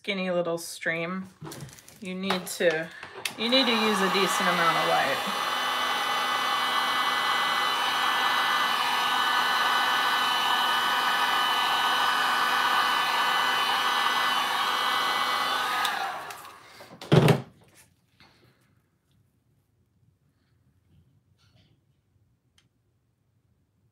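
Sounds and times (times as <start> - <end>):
heat gun blowing air: 2.0 - 17.0.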